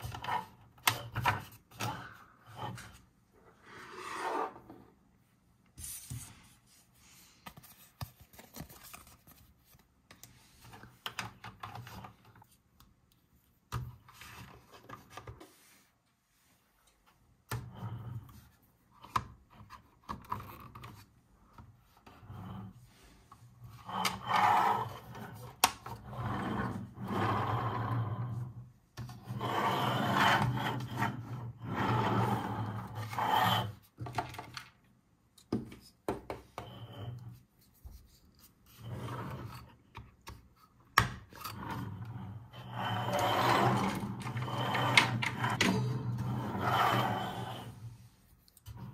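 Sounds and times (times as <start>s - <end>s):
toy bus rubbing along tabletop: 1.9s - 4.8s, 22.2s - 28.5s, 29.2s - 33.8s, 41.5s - 48.0s.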